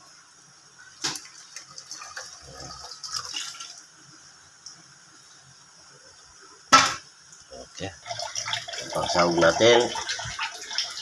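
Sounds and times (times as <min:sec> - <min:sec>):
sharp knock: 0:06.7 - 0:07.0
liquid pouring into a metal pan: 0:08.0 - 0:11.0.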